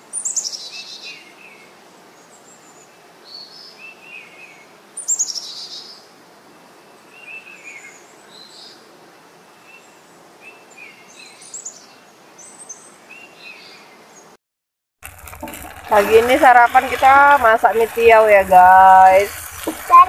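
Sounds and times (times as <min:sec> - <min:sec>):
faint outdoor hiss: 0:00.0 - 0:14.4, 0:15.0 - 0:20.0
wild birds singing: 0:00.0 - 0:14.4.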